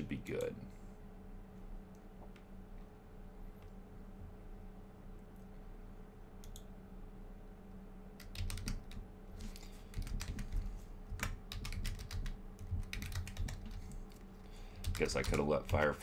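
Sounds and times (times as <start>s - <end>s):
low steady hum: 0.0s - 16.0s
typing on a keyboard: 8.2s - 13.9s, 14.8s - 16.0s.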